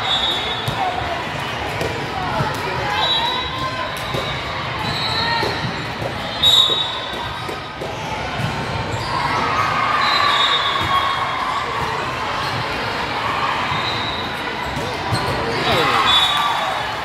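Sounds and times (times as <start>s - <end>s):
spectators' voices: 0.0s - 17.0s
players calling: 15.3s - 16.6s.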